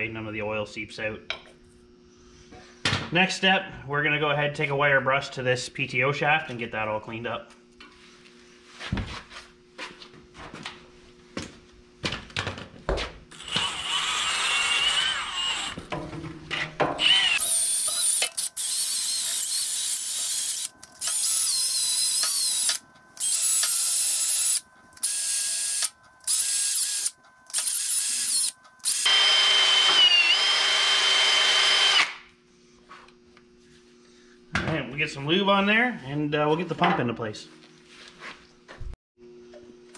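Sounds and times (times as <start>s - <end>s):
drill motor whine: 13.3s - 15.8s, 17.0s - 32.2s.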